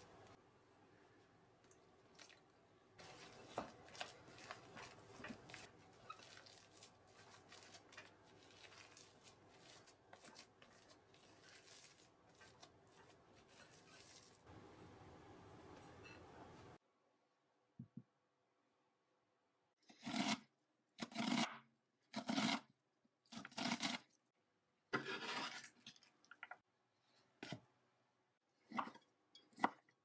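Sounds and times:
spatula scraping glass bowl: 25.0s - 25.8s.

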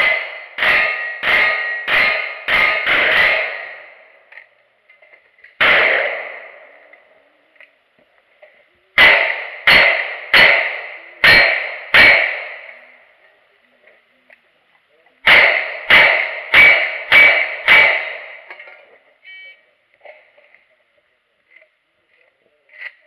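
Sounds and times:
steel target ringing: 0.0s - 4.0s, 9.0s - 13.0s, 15.3s - 18.5s
revolver gunshots: 0.0s - 4.2s, 5.6s - 7.0s, 9.0s - 13.0s, 15.2s - 18.6s.

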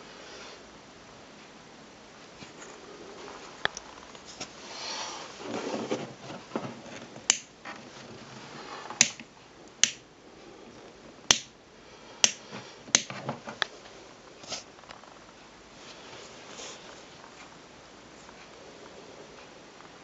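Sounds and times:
lamp switch clicking: 7.3s - 7.5s, 9.0s - 9.2s, 9.8s - 10.0s, 11.3s - 11.5s, 12.2s - 13.1s.

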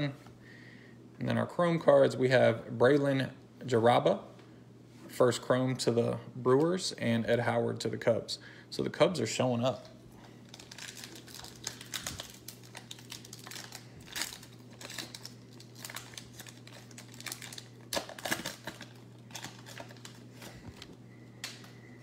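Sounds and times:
low steady hum: 0.0s - 22.0s
wrapper crinkling: 10.3s - 21.7s.

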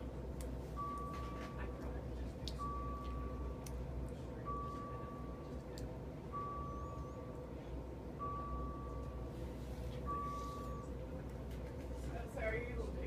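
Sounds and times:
steady low hum: 0.0s - 13.0s
electronic alarm beeping: 0.8s - 1.8s, 2.6s - 3.6s, 4.4s - 5.6s, 6.3s - 7.5s, 8.2s - 9.4s, 10.0s - 11.0s.

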